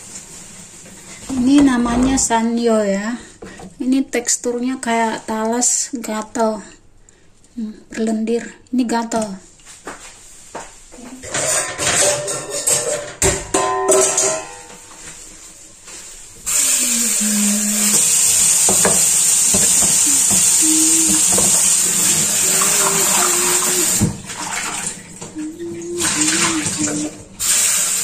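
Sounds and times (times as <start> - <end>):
kitchenware clattering: 11.1 - 15.3, 17.9 - 27.3
kitchen tap running: 16.4 - 28.0.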